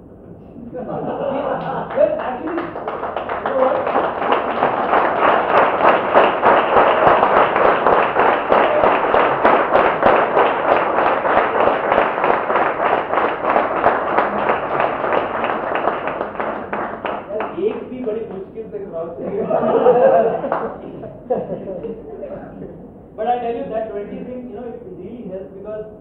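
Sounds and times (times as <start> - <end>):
crowd clapping: 1.4 - 18.5, 19.4 - 21.0, 21.8 - 22.0.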